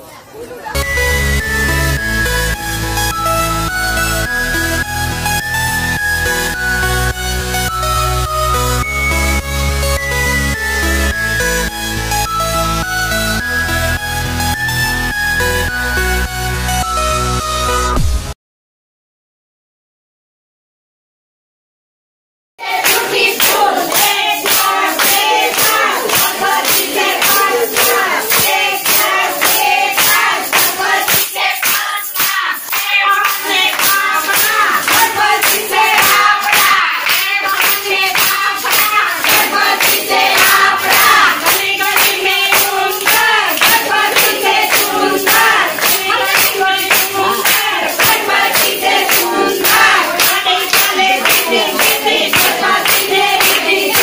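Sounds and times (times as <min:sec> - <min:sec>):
group singing: 0:22.6 - 0:54.0
hand claps: 0:22.7 - 0:54.0.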